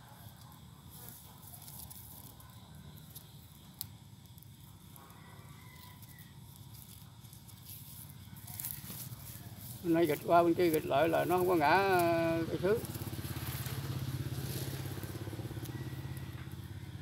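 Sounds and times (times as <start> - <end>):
low outdoor background noise: 0.0 - 17.0
faint plastic cord rustling: 0.3 - 13.7.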